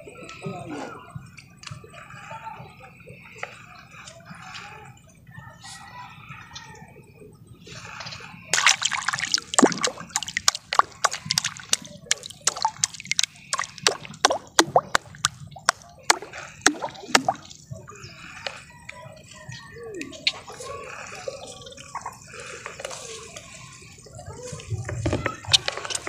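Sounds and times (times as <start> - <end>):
water splashing and dripping: 8.5 - 18.5.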